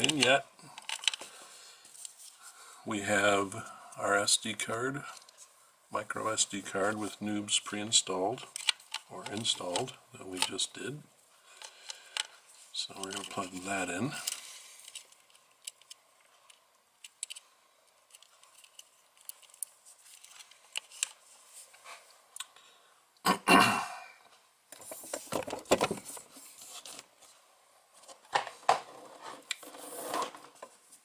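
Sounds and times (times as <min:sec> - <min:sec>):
rustling: 0:18.1 - 0:22.2, 0:24.8 - 0:31.0.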